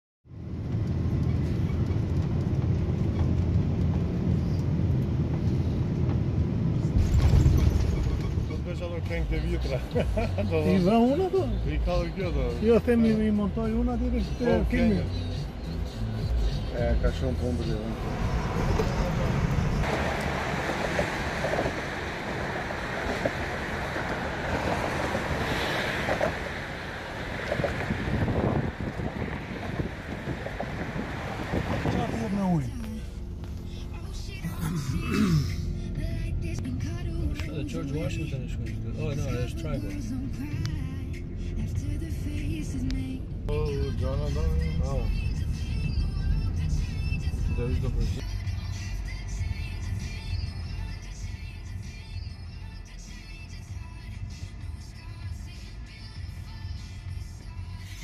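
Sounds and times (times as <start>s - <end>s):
road noise: 0.3s - 58.0s
airliner cabin rumble: 0.4s - 10.4s, 16.8s - 34.3s
wind rushing over microphone: 17.9s - 32.7s.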